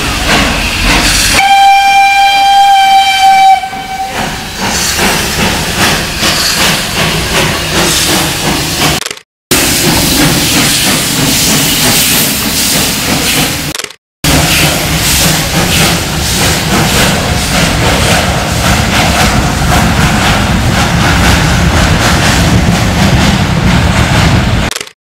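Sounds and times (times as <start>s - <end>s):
train running gear rumble: 0.0s - 24.7s
steam hissing: 3.0s - 9.0s.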